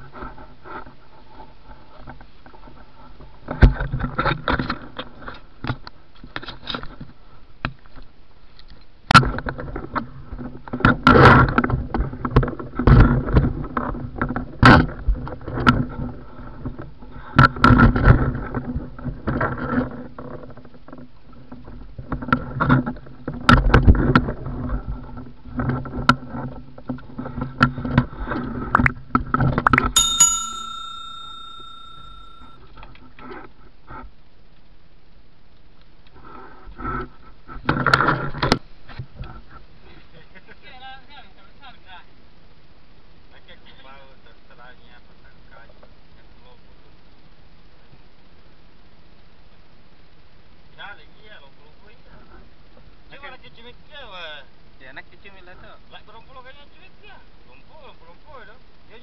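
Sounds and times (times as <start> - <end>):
bell-like ding: 29.7 - 32.5.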